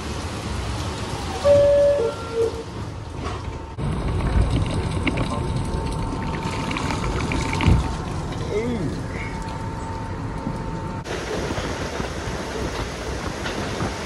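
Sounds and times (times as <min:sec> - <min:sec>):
heavy rain falling: 0:00.0 - 0:09.8
low rumble: 0:00.0 - 0:14.0.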